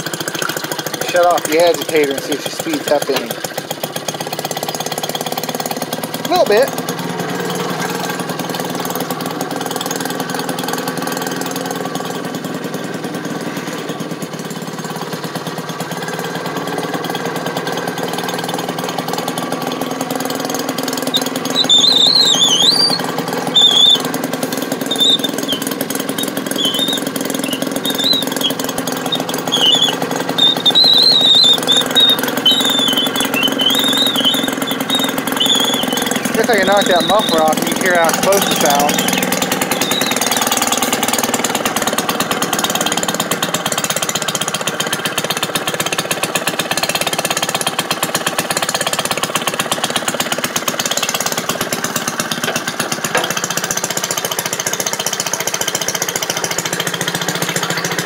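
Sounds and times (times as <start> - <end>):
washing machine motor running: 0.0 - 58.0
high wavering chirps: 21.1 - 40.8.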